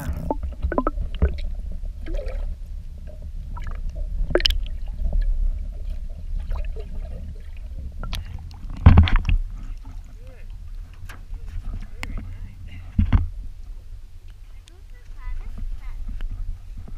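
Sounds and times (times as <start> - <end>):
water gurgling: 0.0 - 12.0
muffled underwater rumble: 0.0 - 16.9.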